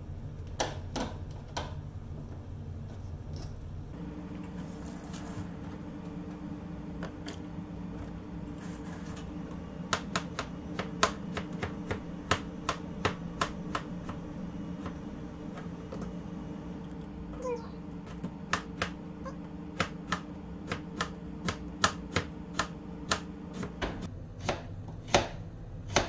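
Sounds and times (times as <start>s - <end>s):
steady low hum: 0.0s - 26.0s
knife chopping on cutting board: 9.9s - 14.2s, 19.8s - 26.0s.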